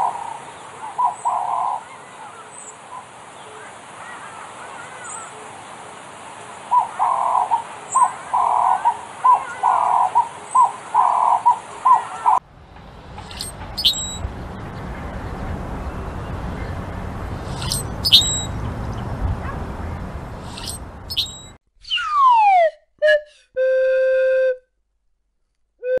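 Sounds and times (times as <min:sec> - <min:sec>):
blackbird squeaky calls: 0:00.0 - 0:05.3, 0:06.7 - 0:22.2
rushing outdoor noise: 0:00.0 - 0:21.6
slide whistle glide: 0:13.3 - 0:14.2, 0:17.6 - 0:18.5, 0:20.5 - 0:24.6
whistle-like tone: 0:13.3 - 0:14.2, 0:17.6 - 0:18.6, 0:20.5 - 0:24.7.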